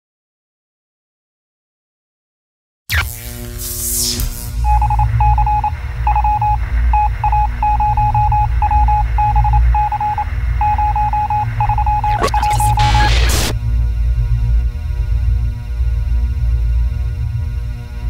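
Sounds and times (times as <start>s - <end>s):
morse-like electronic beeps: 4.6s - 13.6s.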